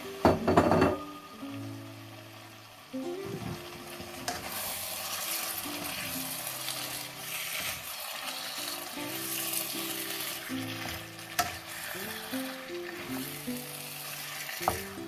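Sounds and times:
vegetables sizzling in a wok: 0.0s - 15.0s
spatula scraping vegetables in pan: 4.2s - 15.0s.

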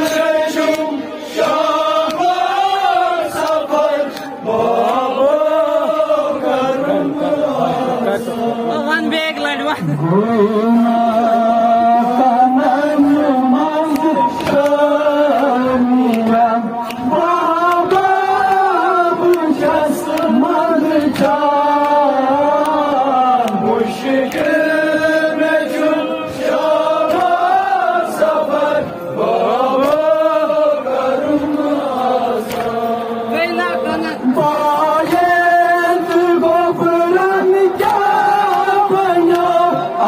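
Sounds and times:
men chanting over loudspeaker: 0.0s - 40.0s
hand slaps on chest: 32.4s - 32.7s.

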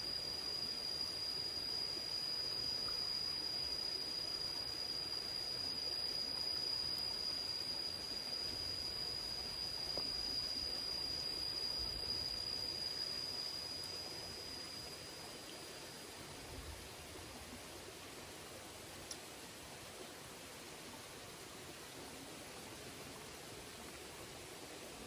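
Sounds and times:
insect high-pitched trill: 0.0s - 19.2s
faint outdoor background noise: 0.0s - 25.0s.

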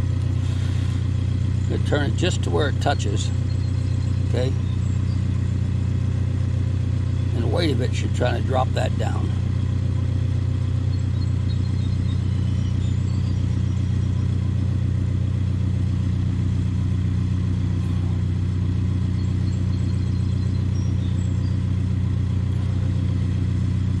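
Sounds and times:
low engine-like drone: 0.0s - 24.0s
faint high chirps: 10.8s - 14.7s.

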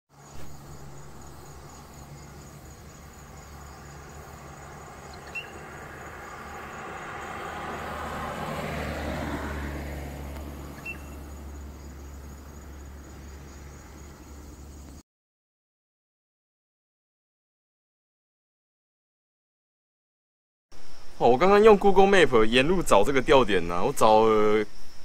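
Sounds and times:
car passing on road: 0.1s - 15.0s
high insect drone: 0.1s - 15.0s, 20.8s - 25.0s
short high chirps: 10.8s - 11.2s.

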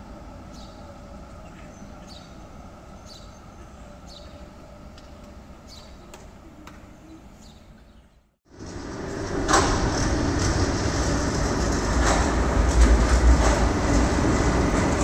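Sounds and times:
distant traffic rumble: 8.5s - 15.0s.

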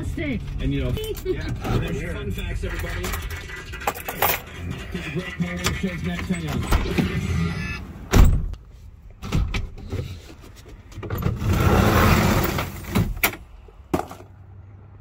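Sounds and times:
sliding door rolling on track: 11.3s - 13.1s.

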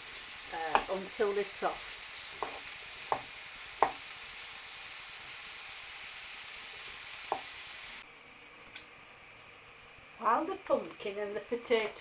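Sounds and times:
food sizzling in frying pan: 0.0s - 8.1s.

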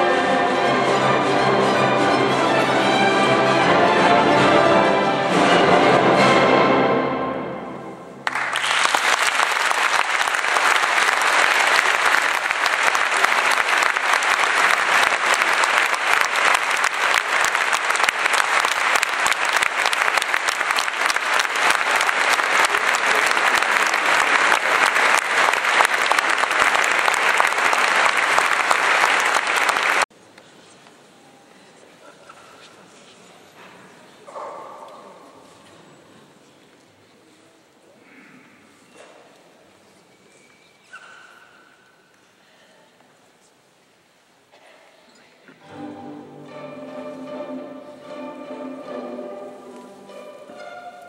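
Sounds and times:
audience applause: 8.2s - 30.1s.

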